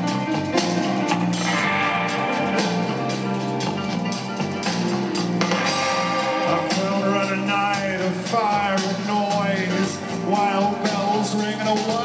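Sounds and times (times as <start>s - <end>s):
live rock band playing: 0.0s - 12.0s
person singing: 5.9s - 12.0s.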